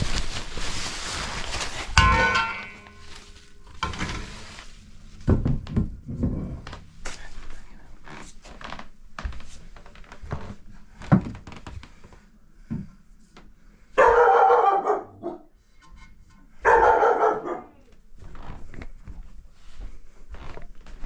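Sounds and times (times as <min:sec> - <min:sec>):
dog barking loudly: 0:14.0 - 0:15.5, 0:16.6 - 0:17.8.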